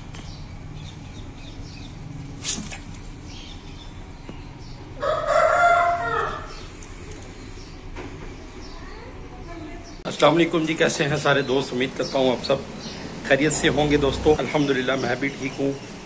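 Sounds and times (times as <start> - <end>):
rooster crowing: 5.0 - 6.7.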